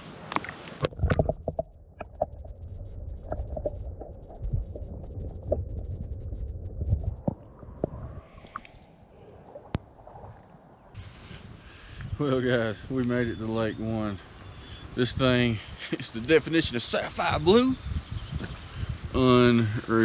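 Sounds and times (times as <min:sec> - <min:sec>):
underwater clicks and knocks: 0:00.3 - 0:08.8
muffled underwater rumble: 0:00.8 - 0:12.2.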